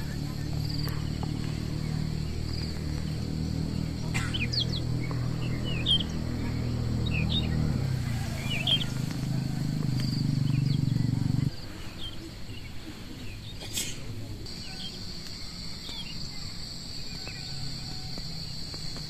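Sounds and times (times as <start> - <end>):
low pulsing rumble: 0.0 - 11.6
high insect drone: 0.0 - 12.8, 13.4 - 19.0
birds chirping: 0.0 - 19.0.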